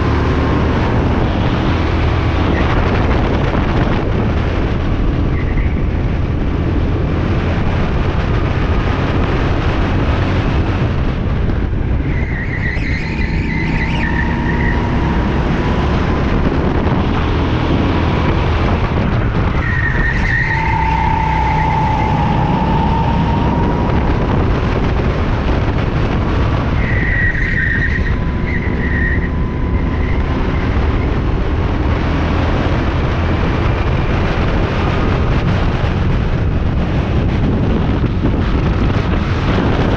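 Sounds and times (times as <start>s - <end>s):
tires squealing: 5.2s - 6.0s, 11.9s - 31.4s.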